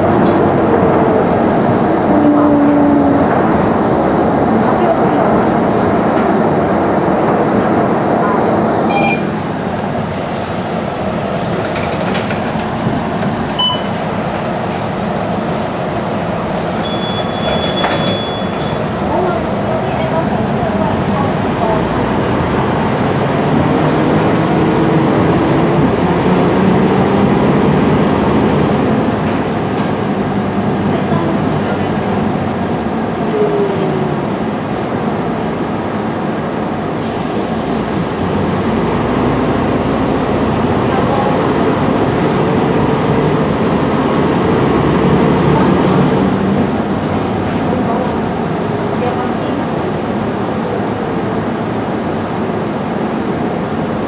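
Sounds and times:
bus diesel engine rumble: 0:00.0 - 0:54.0
high warning beep: 0:08.8 - 0:09.4, 0:13.6 - 0:14.0, 0:16.8 - 0:18.8.

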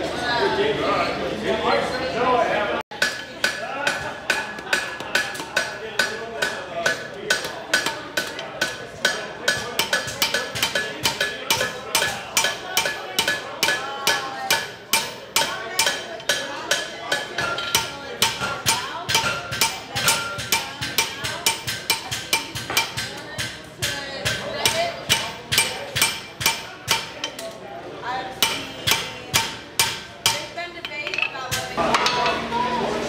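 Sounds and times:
anvil ringing: 0:03.0 - 0:23.0, 0:24.6 - 0:27.3, 0:28.4 - 0:30.5
hammer striking hot steel: 0:03.0 - 0:23.5, 0:24.3 - 0:27.3, 0:28.4 - 0:30.5.

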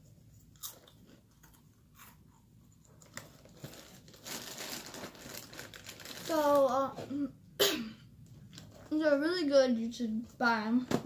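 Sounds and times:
cracker packaging crinkling: 0:02.9 - 0:06.7.

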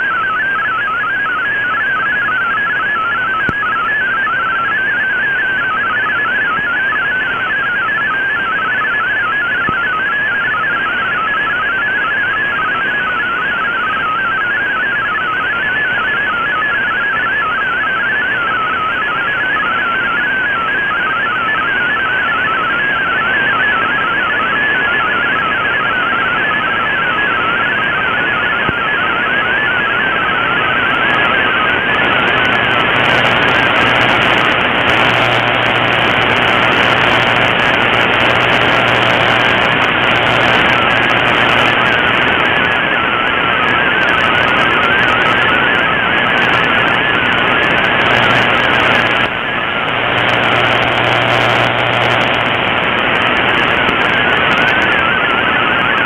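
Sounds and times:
warbling digital radio tones: 0:29.2 - 0:56.0
static hiss: 0:32.0 - 0:42.5, 0:46.2 - 0:54.9.

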